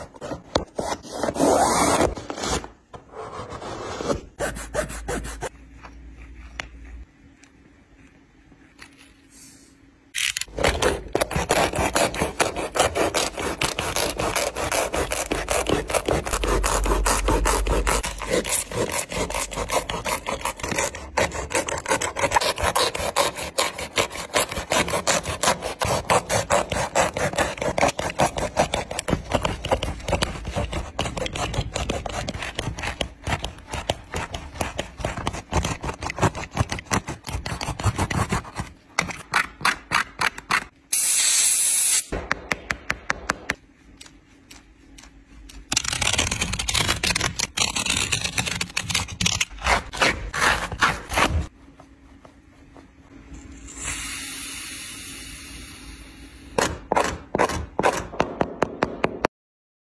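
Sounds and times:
knife sawing through shoe sole: 10.6 - 38.8, 47.3 - 51.5.

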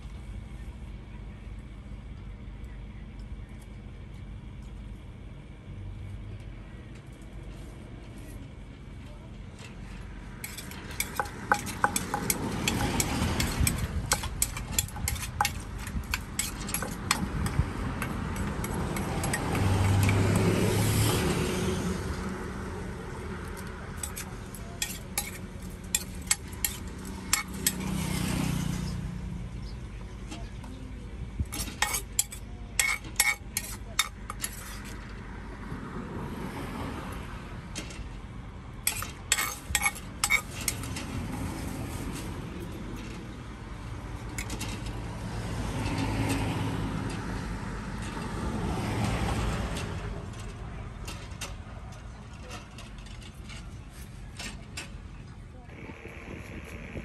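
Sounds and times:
passing traffic rumble: 0.0 - 57.0
utensils knocking in a mortar: 10.4 - 20.4, 24.0 - 28.1, 31.5 - 35.0, 38.9 - 41.0.

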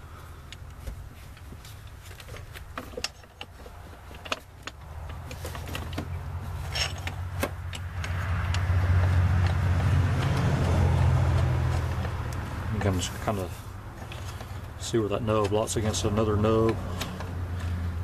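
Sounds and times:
metal parts clinking: 2.1 - 7.9
low motor hum: 4.7 - 14.8.

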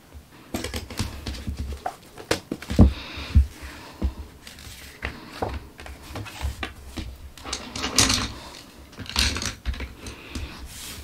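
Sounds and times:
pages turning: 4.4 - 7.0.

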